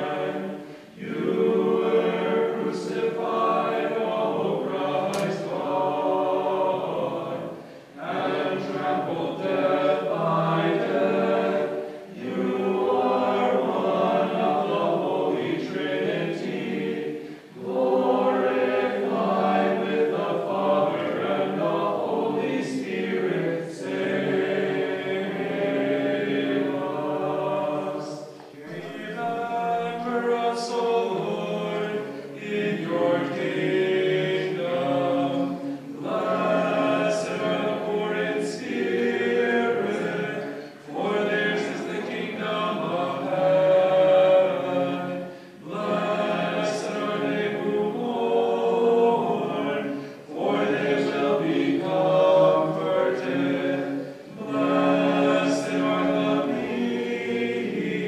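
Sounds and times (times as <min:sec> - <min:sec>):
choir chanting unaccompanied: 0:00.0 - 0:58.0.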